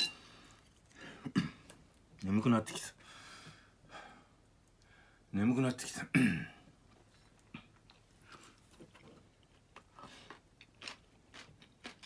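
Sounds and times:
person chewing food: 0:06.9 - 0:12.0.

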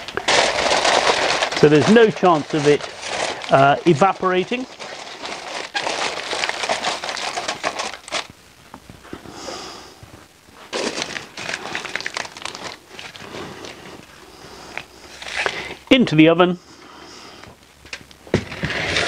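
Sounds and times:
aluminium foil crinkling: 0:00.0 - 0:09.1, 0:10.6 - 0:15.8.

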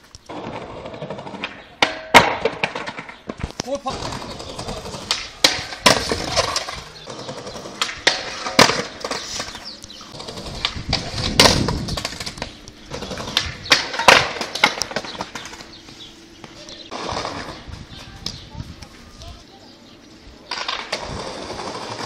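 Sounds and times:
skateboard rolling on paving: 0:00.0 - 0:19.0, 0:19.8 - 0:22.0
skateboard clattering knocks: 0:10.3 - 0:15.7.

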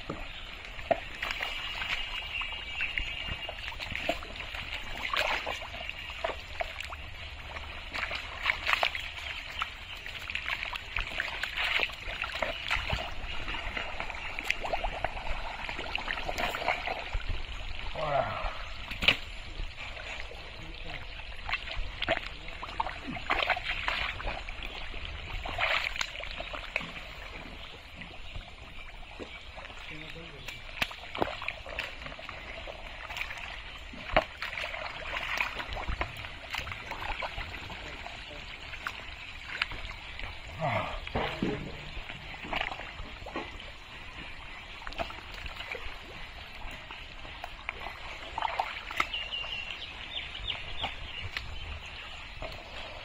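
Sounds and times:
mud squelching and water sloshing: 0:00.0 - 0:53.0
small water splashes: 0:00.0 - 0:53.0.

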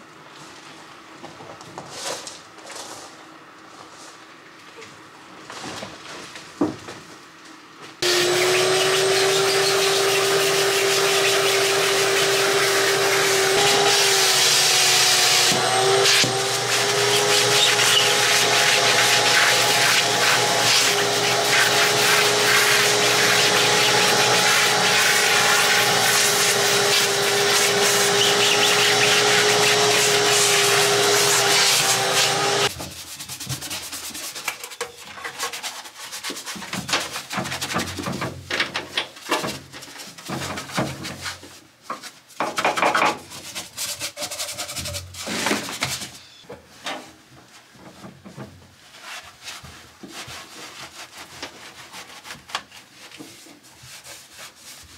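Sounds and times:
vacuum cleaner whine: 0:08.0 - 0:32.7
small brush scrubbing: 0:15.2 - 0:37.6, 0:43.3 - 0:46.1, 0:48.9 - 0:54.9.

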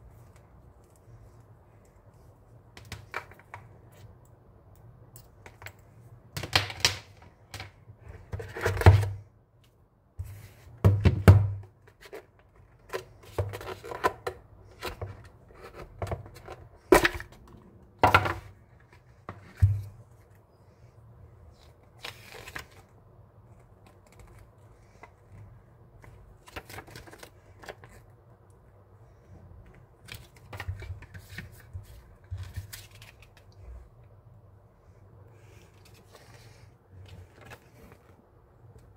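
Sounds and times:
paper rustling: 0:30.0 - 0:33.5, 0:35.4 - 0:38.2.

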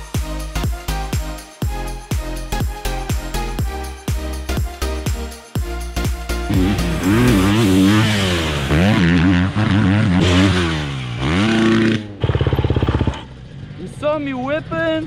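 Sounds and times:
motocross bike engine revving: 0:06.4 - 0:13.6.

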